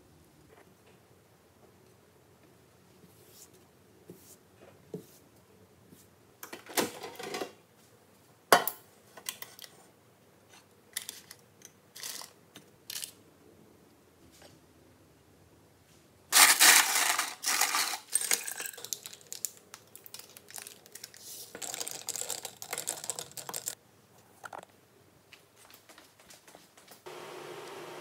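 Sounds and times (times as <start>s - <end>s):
ice cubes clinking in a glass: 16.4s - 19.4s.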